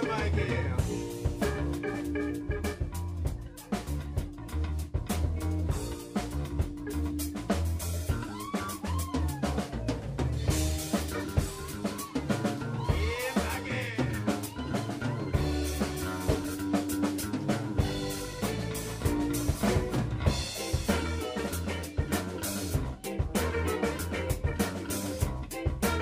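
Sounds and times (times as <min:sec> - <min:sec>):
drum kit hits: 0:00.0 - 0:04.4, 0:15.3 - 0:26.0
electric bass: 0:00.0 - 0:26.0
funk band playing: 0:00.0 - 0:26.0
horns and guitar bending notes: 0:00.0 - 0:26.0.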